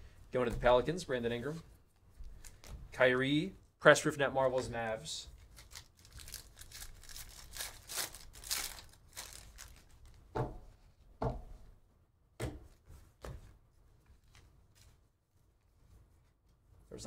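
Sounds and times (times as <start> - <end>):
foil wrapper crinkling and tearing: 5.4 - 10.2.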